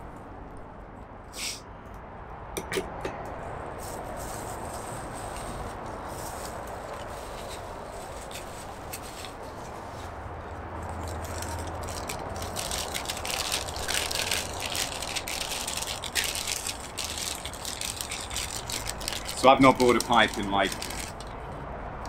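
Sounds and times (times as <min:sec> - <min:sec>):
tissue paper crinkling: 0:11.0 - 0:21.2.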